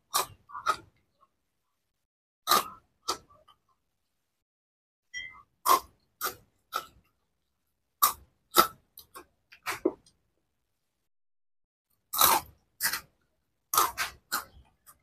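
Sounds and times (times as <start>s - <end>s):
snack sticks crunching: 12.1s - 13.1s, 13.7s - 15.0s.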